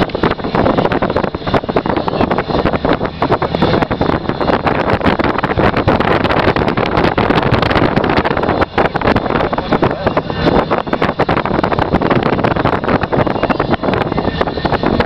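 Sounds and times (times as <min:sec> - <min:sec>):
road and tyre noise: 0:00.0 - 0:15.0
wind buffeting microphone: 0:00.0 - 0:15.0.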